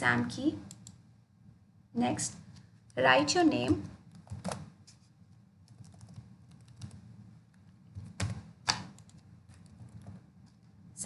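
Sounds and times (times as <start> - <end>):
typing on keyboard: 5.6 - 7.0, 7.9 - 10.2.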